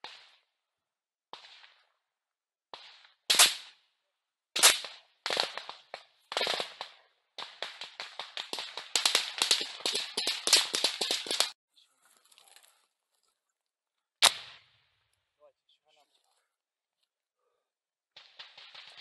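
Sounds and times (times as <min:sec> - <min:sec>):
small-arms gunfire: 0:02.8 - 0:03.8, 0:04.6 - 0:11.6, 0:14.2 - 0:14.7, 0:18.2 - 0:19.0.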